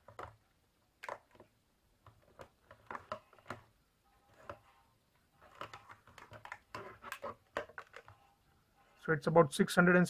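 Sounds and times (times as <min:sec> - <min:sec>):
plastic clicks and knocks: 0:00.0 - 0:00.4, 0:01.0 - 0:03.7, 0:05.4 - 0:08.2.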